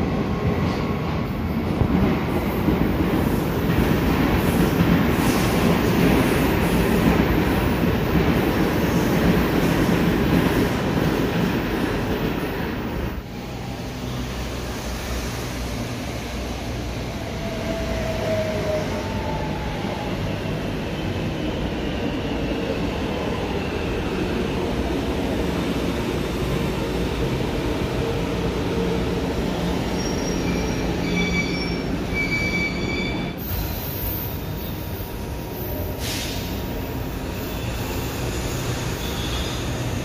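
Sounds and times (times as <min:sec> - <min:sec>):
wheels and brakes squealing: 0:29.7 - 0:34.8, 0:37.3 - 0:40.0.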